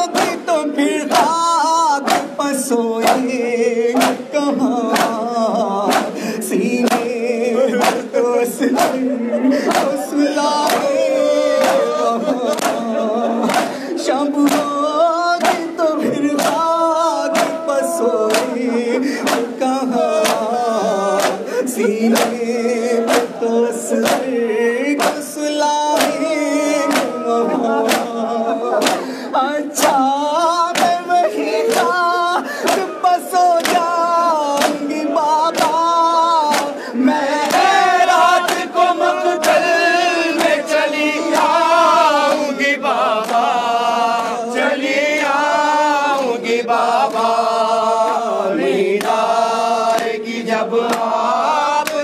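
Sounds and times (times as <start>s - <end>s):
men chanting in unison: 0.0s - 52.0s
open-hand chest-beating slaps: 0.1s - 0.4s, 1.1s - 1.4s, 2.0s - 3.3s, 4.0s - 5.2s, 5.8s - 6.2s, 6.8s - 7.2s, 7.8s - 9.0s, 9.7s - 11.9s, 12.5s - 13.8s, 14.4s - 14.8s, 15.4s - 15.7s, 16.4s - 18.6s, 19.2s - 20.6s, 21.2s - 21.4s, 22.1s - 23.4s, 24.0s - 24.3s, 25.0s - 25.3s, 26.0s - 27.2s, 27.8s - 28.2s, 28.8s - 29.1s, 29.8s - 30.1s, 30.7s - 31.1s, 31.7s - 32.0s, 32.6s - 35.9s, 36.5s - 36.8s, 37.4s - 39.7s, 40.3s - 40.7s, 41.3s - 44.4s, 49.0s - 50.2s, 50.8s - 52.0s.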